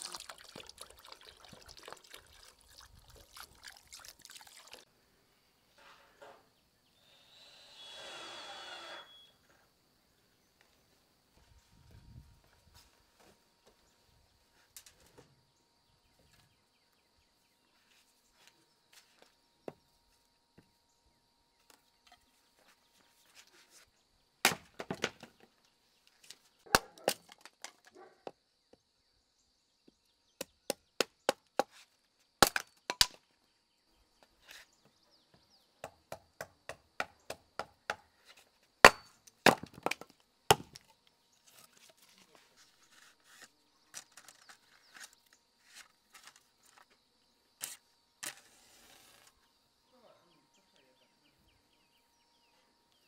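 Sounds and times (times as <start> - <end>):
axe splitting log: 24.4 - 25.2, 32.4 - 33.1, 38.8 - 40.9.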